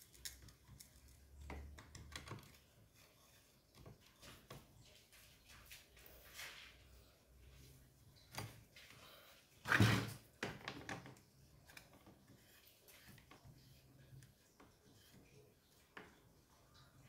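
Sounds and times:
hard plastic knocking and clattering: 0:09.7 - 0:11.2.

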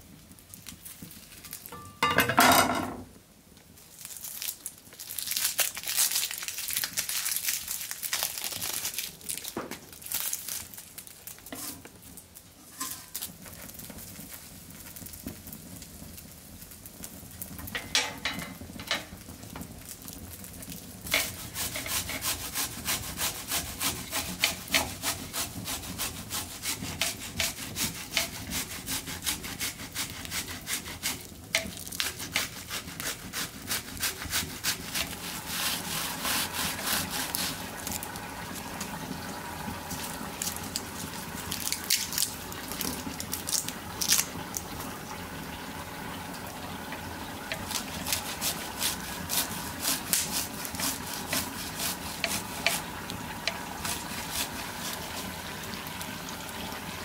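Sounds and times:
grater rasping strokes: 0:21.1 - 0:38.1, 0:47.5 - 0:55.3.

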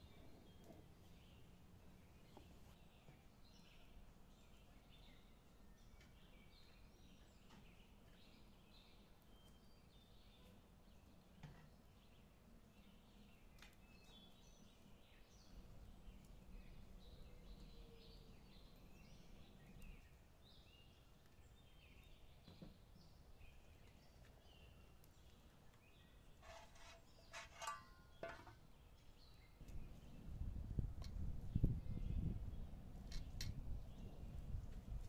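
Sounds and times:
frying pan clinking on iron grate: 0:26.5 - 0:28.6.

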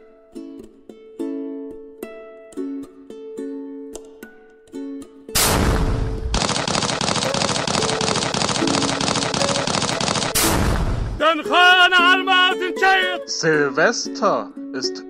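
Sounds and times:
plucked ukulele notes: 0:00.0 - 0:05.4, 0:11.2 - 0:15.0
dense fireworks crackling: 0:05.4 - 0:11.3
fireworks bursts: 0:05.4 - 0:11.4.

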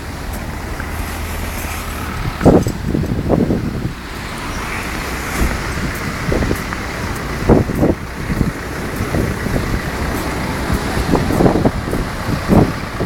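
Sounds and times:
strong wind buffeting microphone: 0:00.0 - 0:13.0.

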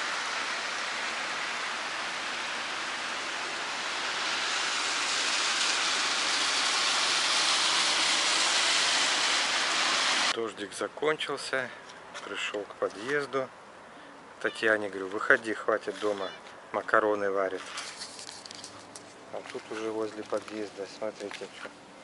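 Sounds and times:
rain hissing on pavement and cars: 0:00.0 - 0:10.4, 0:16.9 - 0:21.7.

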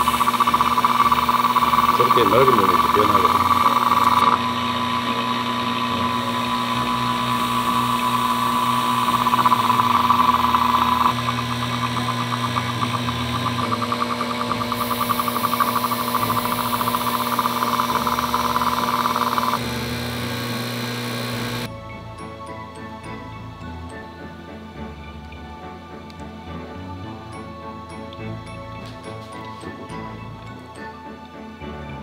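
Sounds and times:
power tool whining: 0:00.0 - 0:21.7.

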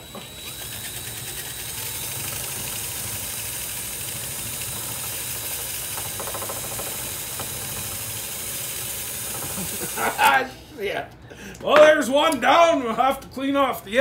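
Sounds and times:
cordless drill running: 0:00.0 - 0:10.4.

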